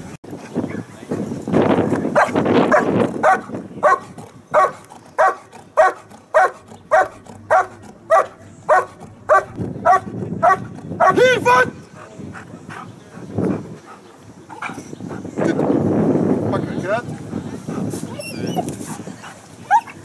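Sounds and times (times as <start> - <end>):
dog barking: 2.2 - 11.2.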